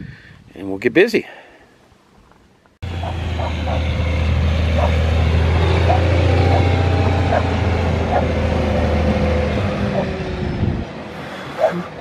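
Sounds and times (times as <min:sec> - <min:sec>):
diesel truck engine idling: 0:02.8 - 0:12.0.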